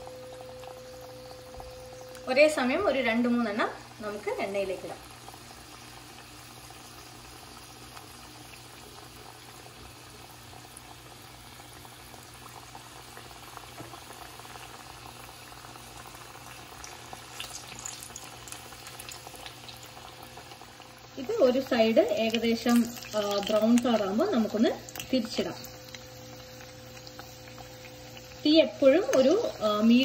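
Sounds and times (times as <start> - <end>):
deep-frying sizzle in hot oil: 0.0 - 30.0.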